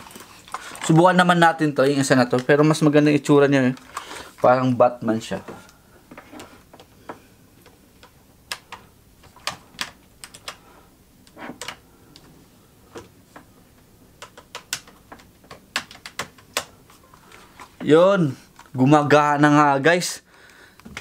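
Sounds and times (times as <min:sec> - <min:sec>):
laptop keys clicking: 0:07.6 - 0:10.6, 0:11.6 - 0:12.3, 0:14.1 - 0:16.8.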